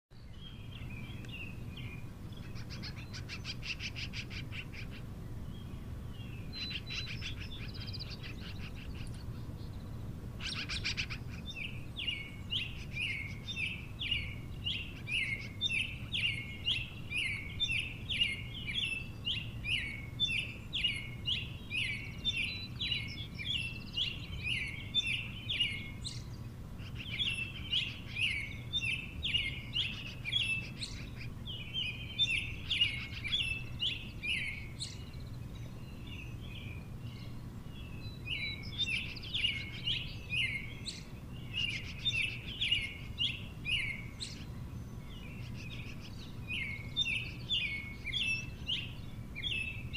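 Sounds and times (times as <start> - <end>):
magpie chirping: 10.4 - 26.2, 26.8 - 35.1.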